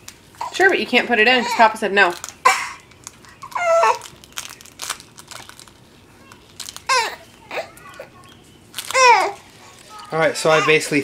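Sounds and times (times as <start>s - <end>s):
onion skins crinkling: 0.0s - 11.0s.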